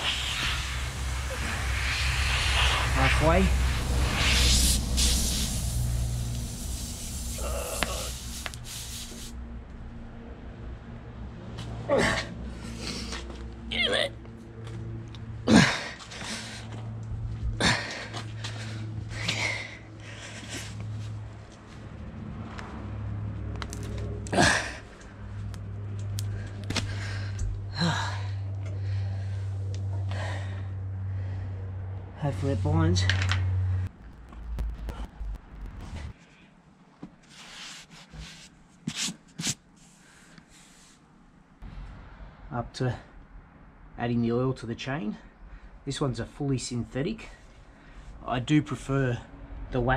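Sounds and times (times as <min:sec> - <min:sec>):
air hissing from tyre: 0:00.0 - 0:09.5
steady low hum: 0:00.0 - 0:37.0, 0:40.0 - 0:49.9
person grunting: 0:07.4 - 0:08.2, 0:11.9 - 0:12.4, 0:13.7 - 0:14.2, 0:15.5 - 0:16.0.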